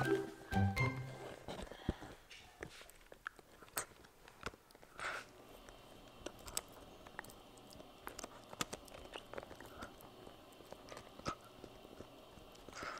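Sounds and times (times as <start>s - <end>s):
puppy teeth clicking on chew: 3.1s - 12.9s.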